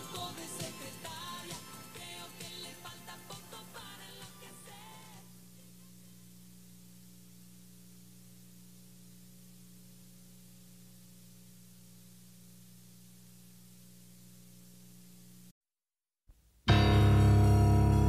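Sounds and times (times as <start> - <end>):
faint electrical hum: 0.0 - 15.5.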